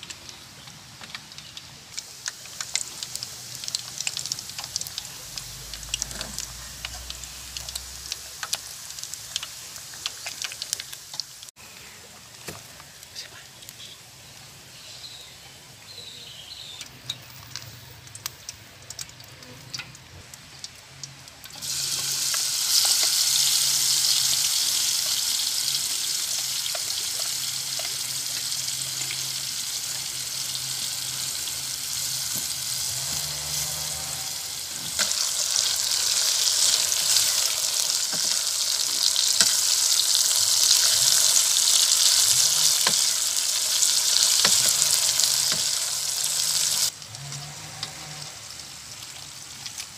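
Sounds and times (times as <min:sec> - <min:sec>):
vegetables sizzling in hot oil: 0:00.0 - 0:11.5, 0:21.4 - 0:49.9.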